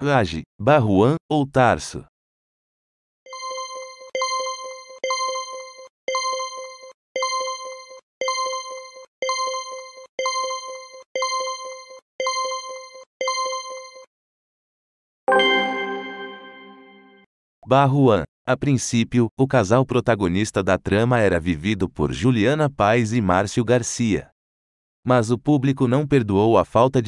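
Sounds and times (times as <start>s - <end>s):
chime ringing: 3.3s - 14.1s, 15.3s - 17.2s
ringing countdown beeps: 3.3s - 14.1s.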